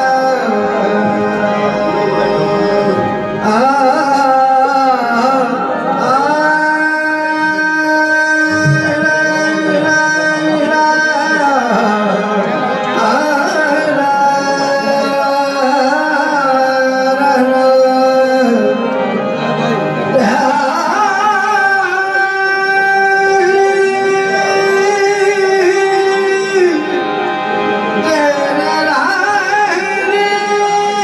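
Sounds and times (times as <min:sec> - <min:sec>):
harmonium playing: 0:00.0 - 0:31.0
ornamented singing: 0:00.0 - 0:31.0
hand drum: 0:08.5 - 0:09.1.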